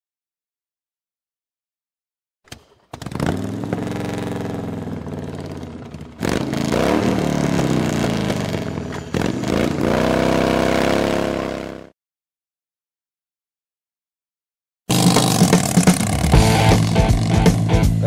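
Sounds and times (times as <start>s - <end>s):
motorcycle engines revving: 2.8s - 11.9s, 14.9s - 18.0s.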